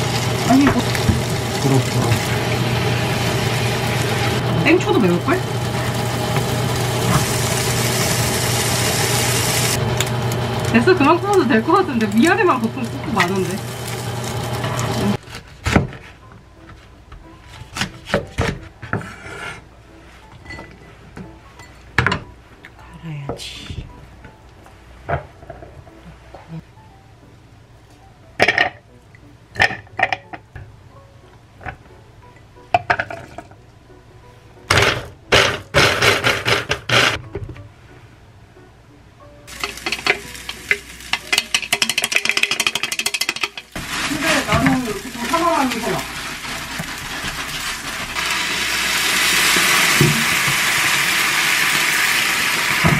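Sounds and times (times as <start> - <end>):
seasoning sizzling in a frying pan: 0.0 - 15.2, 39.5 - 52.9
knife scraping board: 18.8 - 19.6
spatula clicking and scraping a pan: 39.5 - 43.8.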